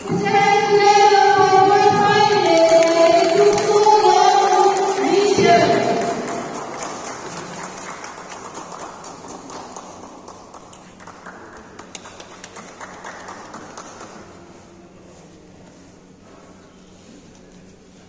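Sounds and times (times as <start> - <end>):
crowd applause: 1.5 - 14.4.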